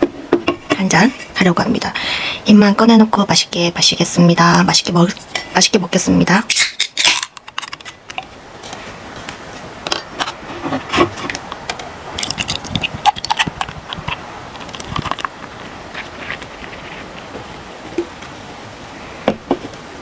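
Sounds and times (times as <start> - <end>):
beer can cracked open: 6.5 - 8.2.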